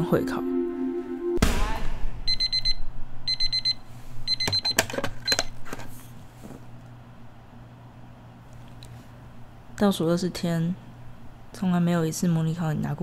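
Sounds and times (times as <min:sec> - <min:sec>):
kick slapping a kick pad: 0:01.4 - 0:02.1
alarm clock beeping: 0:02.3 - 0:05.4.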